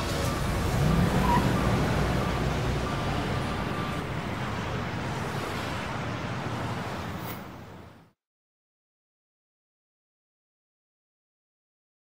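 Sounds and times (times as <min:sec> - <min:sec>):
car driving by: 0:00.0 - 0:07.4.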